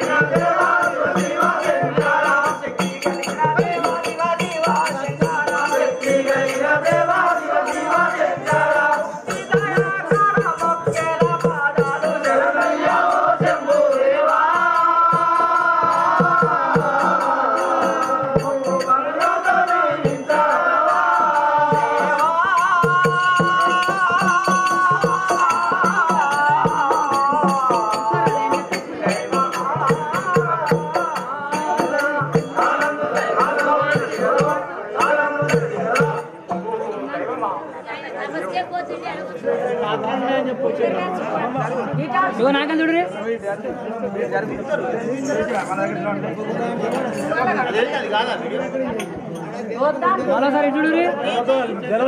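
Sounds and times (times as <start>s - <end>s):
rattling jingling percussion: 0.0s - 37.1s, 44.3s - 51.0s
devotional chanting: 0.0s - 52.0s.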